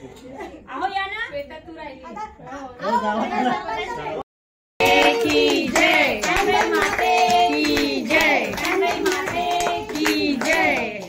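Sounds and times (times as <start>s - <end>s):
rhythmic hand clapping: 4.8s - 11.0s
voices singing: 4.8s - 11.0s.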